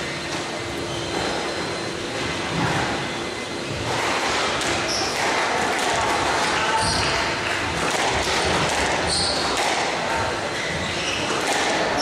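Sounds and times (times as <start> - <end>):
hall and crowd noise: 0.0 - 12.0
squash ball struck by rackets: 3.8 - 10.2, 11.3 - 12.0.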